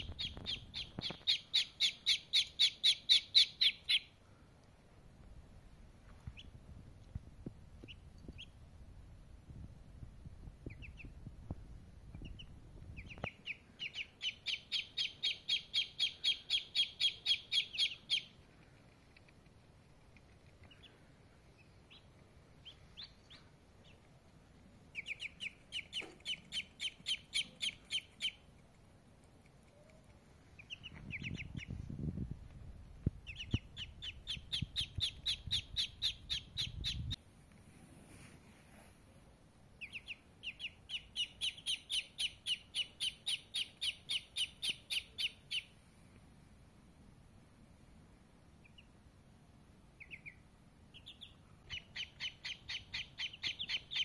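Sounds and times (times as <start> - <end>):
duckling peeping: 0.0 - 4.2, 6.2 - 6.7, 7.8 - 8.7, 10.6 - 11.3, 12.0 - 31.9, 33.1 - 37.2, 39.8 - 46.3, 48.6 - 49.1, 49.9 - 54.0.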